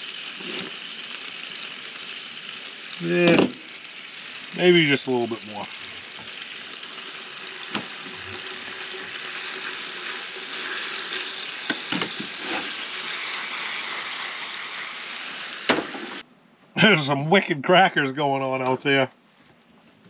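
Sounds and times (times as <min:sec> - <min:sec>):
vegetables sizzling in frying pan: 0:00.0 - 0:16.2
utensil stirring in pan: 0:05.6 - 0:16.2.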